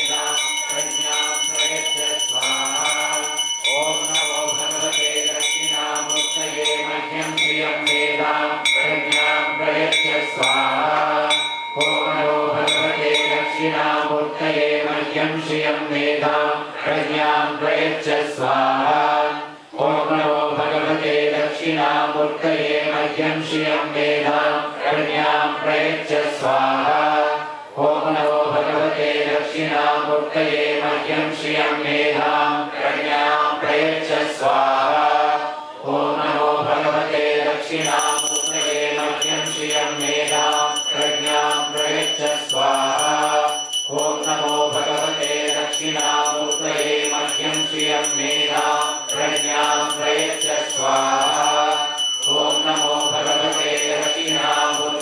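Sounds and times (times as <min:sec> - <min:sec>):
hand bell ringing: 0:00.0 - 0:14.6, 0:37.8 - 0:55.0
men chanting in unison: 0:00.0 - 0:55.0.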